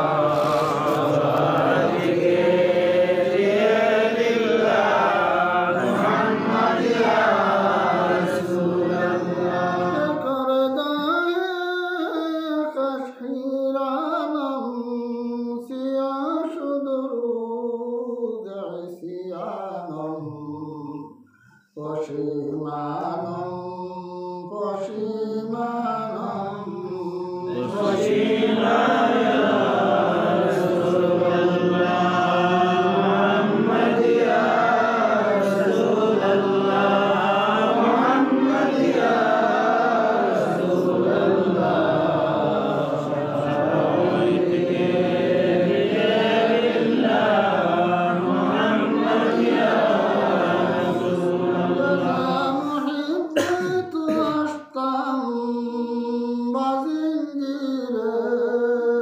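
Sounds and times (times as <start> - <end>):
voices chanting melodically: 0.0 - 10.4, 26.3 - 54.6.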